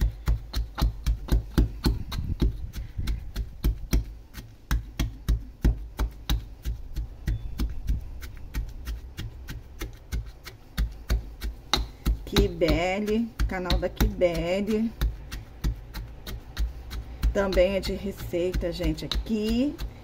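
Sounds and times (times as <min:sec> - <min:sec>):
metal pestle pounding in mortar: 0:00.0 - 0:20.0.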